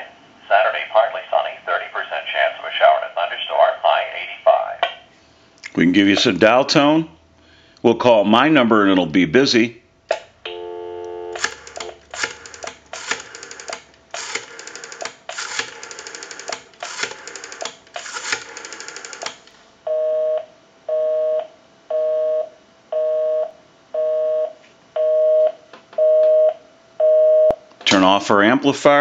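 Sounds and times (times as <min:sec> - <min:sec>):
rotary dial clicks: 0:11.4 - 0:19.5.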